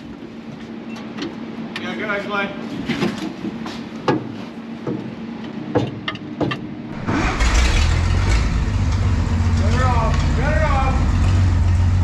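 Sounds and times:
truck engine idling: 6.9s - 12.0s.

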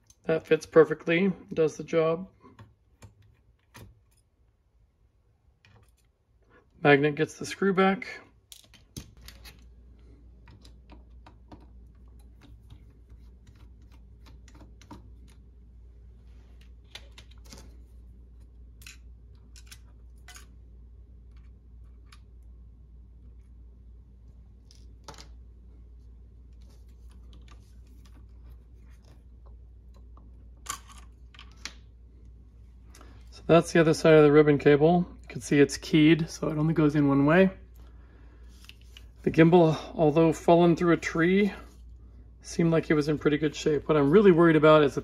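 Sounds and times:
low steady hum: 0.0s - 45.0s
hands handling plastic clicks: 8.4s - 9.7s, 16.6s - 20.6s.

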